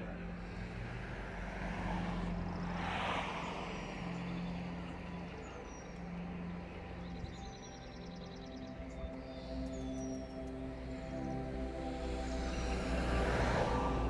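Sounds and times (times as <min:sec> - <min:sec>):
road vehicle passing: 0:00.0 - 0:07.3, 0:10.2 - 0:14.0.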